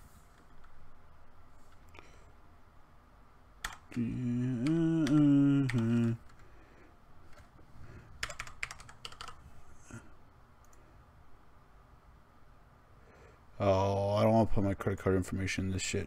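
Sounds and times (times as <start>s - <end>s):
computer keyboard typing: 3.6s - 6.5s, 8.2s - 9.4s
man humming: 3.7s - 6.4s.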